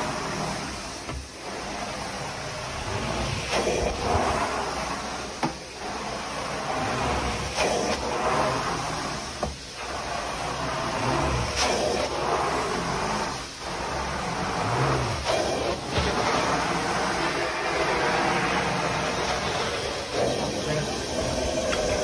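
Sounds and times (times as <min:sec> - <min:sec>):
carpet extraction wand suction: 0:09.8 - 0:22.0.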